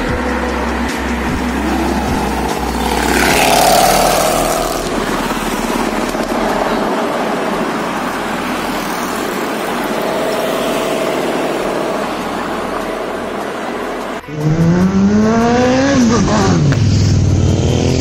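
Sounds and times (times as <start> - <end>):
tyres hissing on road: 0.0 - 14.2
car engines passing: 0.0 - 18.0
engine revving: 0.0 - 18.0.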